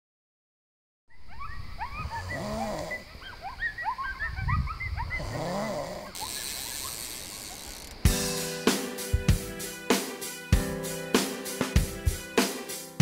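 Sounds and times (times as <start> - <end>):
animal chirps: 1.1 - 8.0
deep drawn-out animal calls: 1.2 - 8.0.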